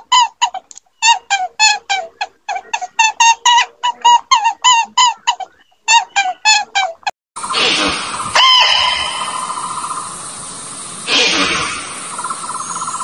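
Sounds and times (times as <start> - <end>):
bird call: 3.5 - 10.2
insect trill: 7.4 - 13.0
short hissy bursts: 9.0 - 12.5.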